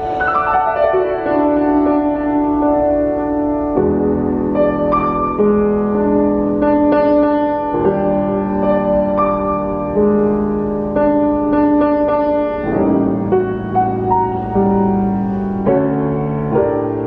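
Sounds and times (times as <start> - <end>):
grand piano chords: 0.0 - 17.0.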